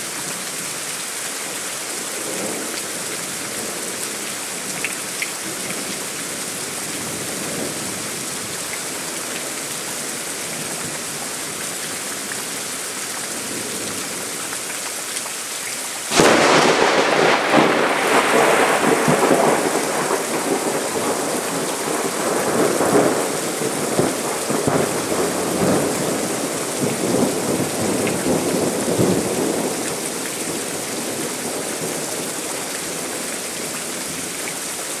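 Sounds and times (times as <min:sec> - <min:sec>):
steady rain falling: 0:00.0 - 0:35.0
thunder rolling and rumbling: 0:16.1 - 0:29.9.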